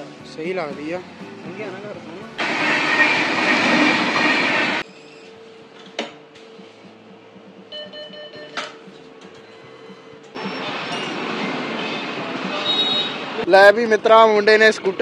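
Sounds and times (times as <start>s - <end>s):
train passing rumble: 2.3s - 4.8s
short beeping tone: 7.7s - 8.6s.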